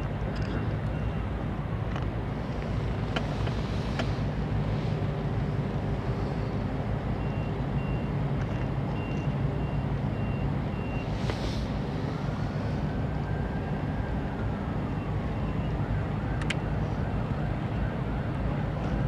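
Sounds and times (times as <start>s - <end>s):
reversing alarm beeping: 7.2s - 8.2s, 8.9s - 11.1s.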